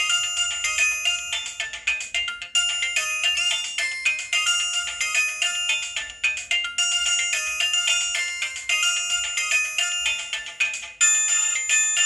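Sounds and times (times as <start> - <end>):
mobile phone ringtone melody: 0.0 - 12.0.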